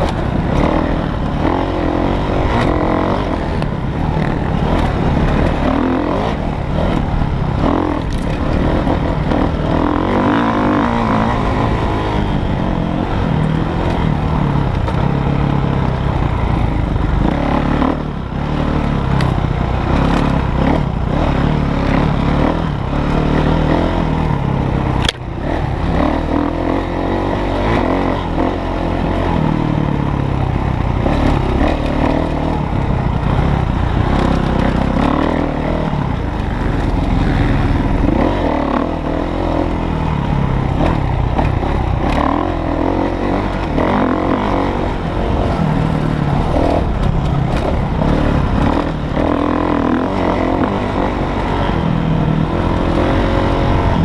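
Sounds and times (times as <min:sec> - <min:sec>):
dirt bike engine revving: 0:00.0 - 0:54.0
sharp click: 0:25.0 - 0:25.2.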